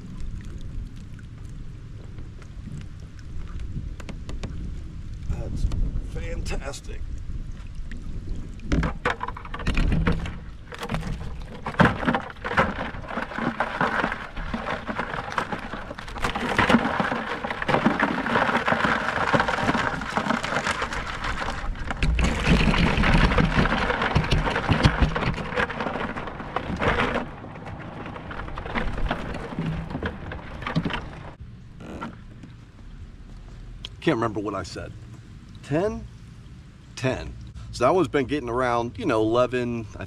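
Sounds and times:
crabs clattering in wire pot: 8.8s - 31.4s.

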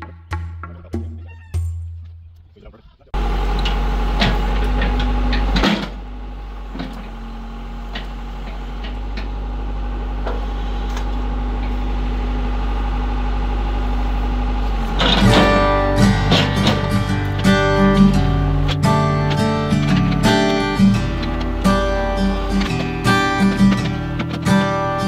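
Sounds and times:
diesel engine running: 3.1s - 25.0s
metal knocks and clanks: 4.2s - 6.0s, 14.9s - 25.0s
acoustic guitar music: 14.6s - 25.0s.

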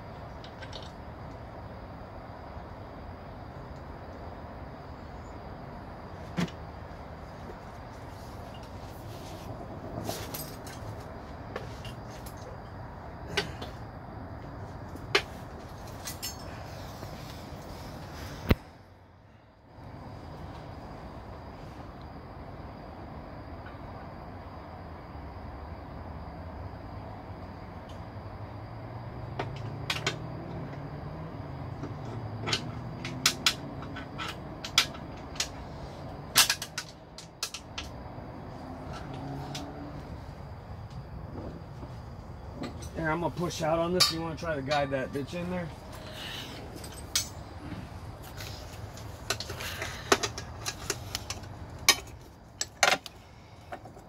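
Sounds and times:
low background noise: 0.0s - 54.0s
metal tools clinking: 15.1s - 17.2s, 42.6s - 47.6s
tools knocking and clanking: 31.8s - 35.6s, 41.4s - 43.0s, 43.9s - 44.9s, 49.0s - 53.1s.

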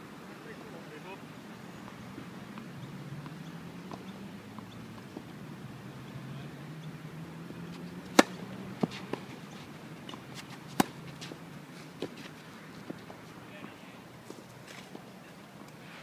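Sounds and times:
tennis racquet hitting ball: 7.7s - 9.3s, 10.1s - 11.4s.

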